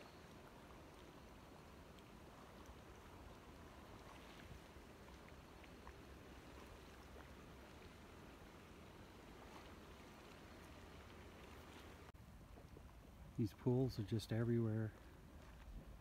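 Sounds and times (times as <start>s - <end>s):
faint ticks: 0.0s - 7.8s.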